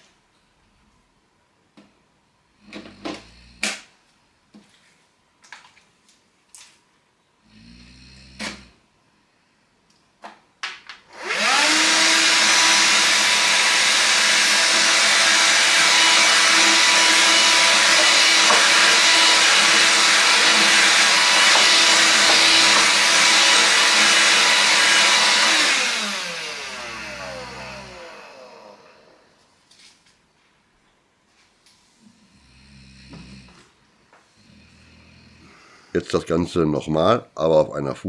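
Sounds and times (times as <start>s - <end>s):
handheld vacuum cleaner whine: 11.1s - 29.4s.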